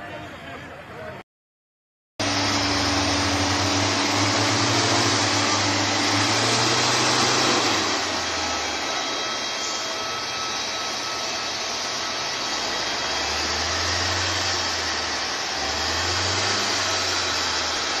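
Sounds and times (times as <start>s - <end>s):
water cannon rushing hiss: 2.2s - 18.0s.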